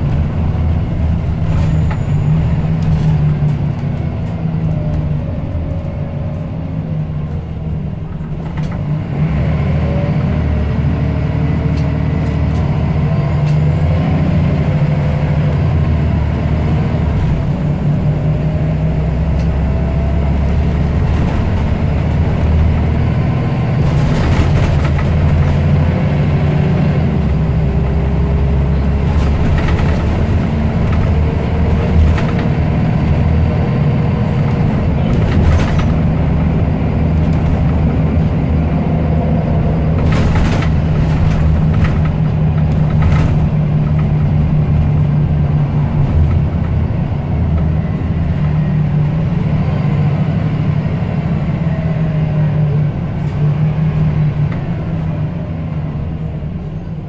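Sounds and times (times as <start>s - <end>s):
bus engine hum: 0.0s - 57.0s
knocks and rattles: 23.7s - 25.9s, 29.0s - 32.9s, 34.5s - 38.3s, 39.9s - 45.0s.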